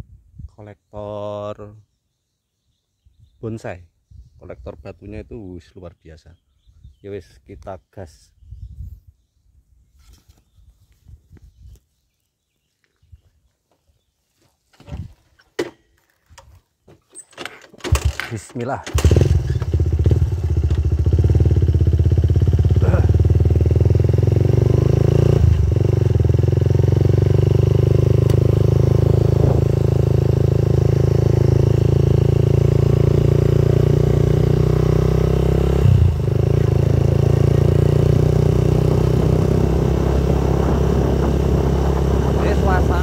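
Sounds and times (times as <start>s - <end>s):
motorcycle engine running: 18.9s - 43.0s.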